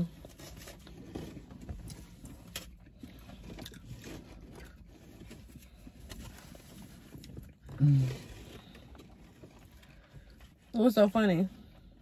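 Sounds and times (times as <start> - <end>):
chewing: 1.7 - 10.3.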